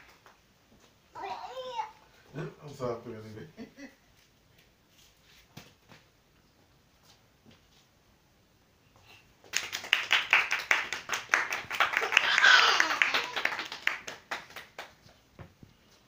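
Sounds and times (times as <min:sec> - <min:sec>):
hands clapping quickly: 0:09.4 - 0:15.2.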